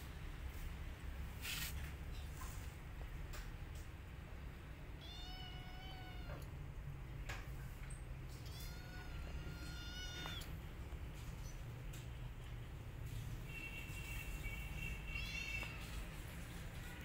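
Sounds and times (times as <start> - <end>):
cat crying: 5.0 - 6.4, 8.4 - 10.6, 15.1 - 15.8.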